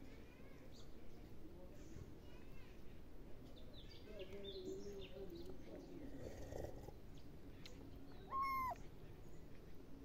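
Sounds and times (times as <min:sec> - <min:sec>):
kitten meowing: 0:08.3 - 0:08.8.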